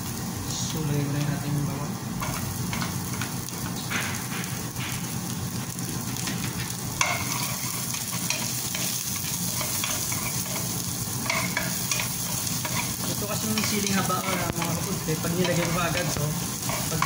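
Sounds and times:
food sizzling in hot oil: 0:00.0 - 0:17.0
wooden spatula scraping a pan: 0:07.0 - 0:17.0.

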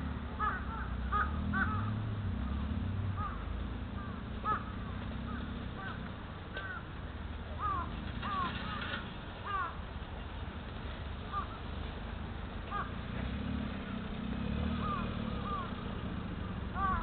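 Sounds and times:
car engine rumbling: 0:00.0 - 0:17.0
birds calling: 0:00.4 - 0:02.0, 0:03.2 - 0:06.9, 0:07.6 - 0:09.8, 0:11.3 - 0:11.7, 0:12.7 - 0:13.0, 0:13.8 - 0:17.0.

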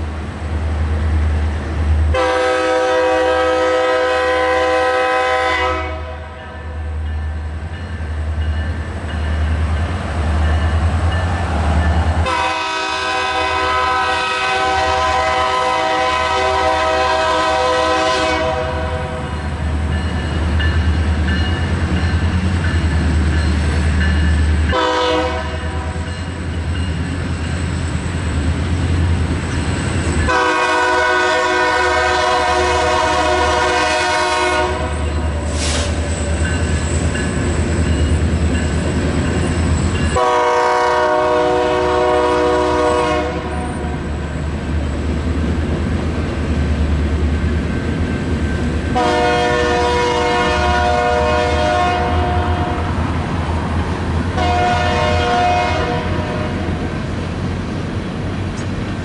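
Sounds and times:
low rumble of train: 0:00.0 - 0:59.0
locomotive air horn blasts: 0:02.1 - 0:06.4, 0:12.2 - 0:19.4, 0:24.7 - 0:26.1, 0:30.3 - 0:35.0, 0:40.2 - 0:44.0, 0:48.9 - 0:53.0, 0:54.3 - 0:56.8.

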